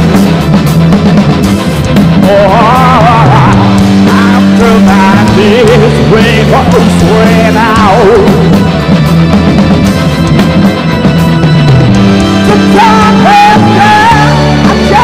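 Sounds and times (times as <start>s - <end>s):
live rock band playing: 0.0s - 15.0s
man singing: 2.2s - 8.7s, 12.4s - 15.0s.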